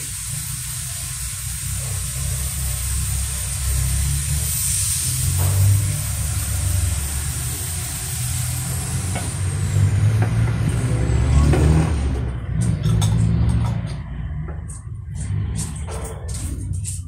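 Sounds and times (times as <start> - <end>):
wok knocking: 9.0 - 10.7.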